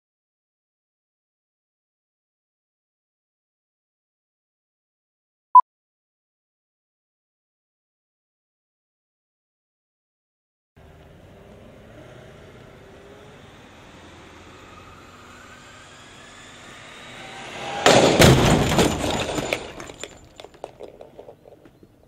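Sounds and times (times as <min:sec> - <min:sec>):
parts skidding and rattling: 0:10.8 - 0:22.0
faint rising whine: 0:11.1 - 0:18.2
loud motorcycle crash: 0:16.5 - 0:21.3.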